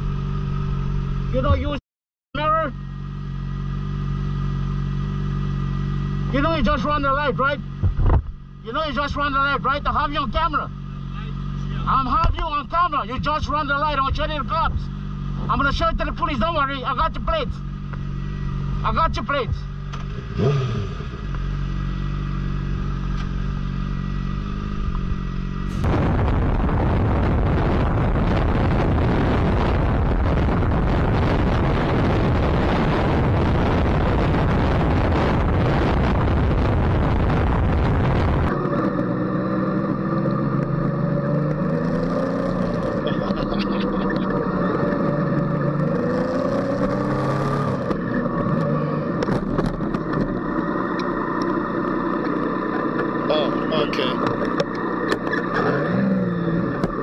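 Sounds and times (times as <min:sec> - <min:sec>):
motorcycle engine revving: 0:00.0 - 0:01.8, 0:02.4 - 0:57.0
loud wind rush: 0:25.7 - 0:38.6.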